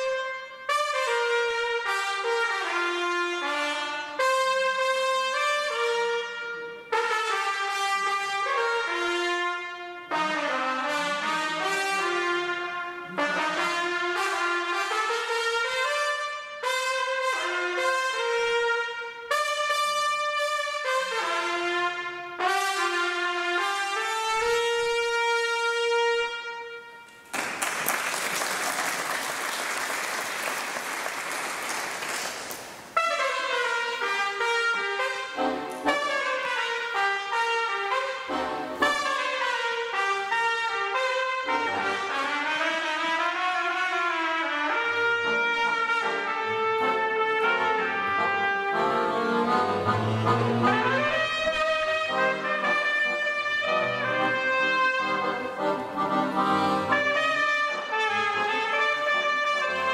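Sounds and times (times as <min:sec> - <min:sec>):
jazz trumpet melody: 0:00.0 - 0:27.3, 0:32.8 - 0:59.9
accordion chords: 0:00.0 - 0:59.9
bass: 0:44.7 - 0:59.9.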